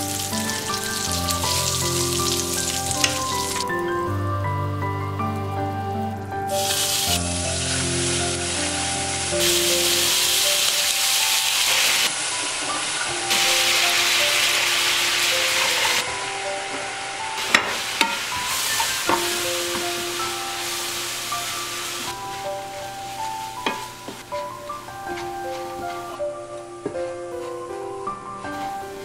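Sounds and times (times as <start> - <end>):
caramel sizzling and bubbling in pan: 0.0 - 3.7, 6.5 - 26.2
wooden spatula stirring: 21.5 - 26.4, 28.5 - 29.0.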